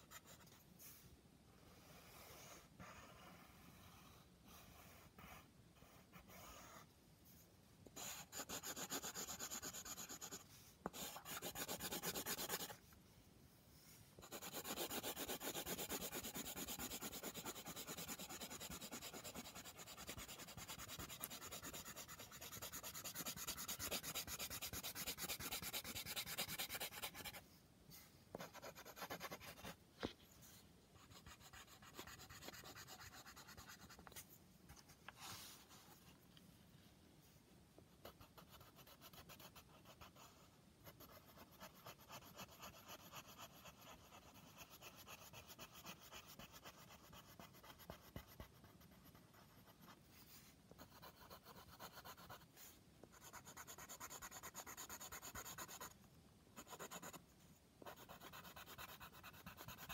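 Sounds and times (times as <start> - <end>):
pencil shading on paper: 0.0 - 0.6, 1.7 - 6.9, 8.0 - 12.8, 14.2 - 27.4, 28.3 - 29.8, 31.0 - 34.2, 38.0 - 50.0, 50.7 - 52.5, 53.1 - 56.0, 56.6 - 57.2, 57.8 - 59.9.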